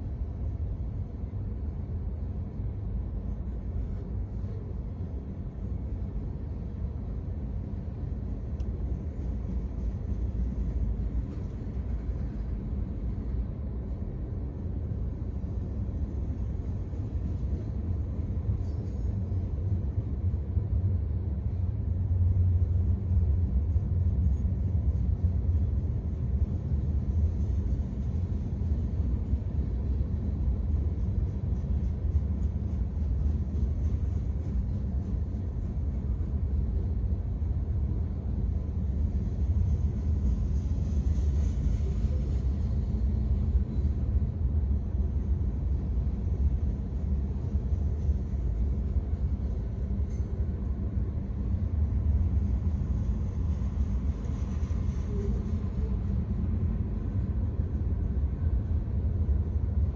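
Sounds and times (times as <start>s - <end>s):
freight train rolling past: 0.0s - 59.9s.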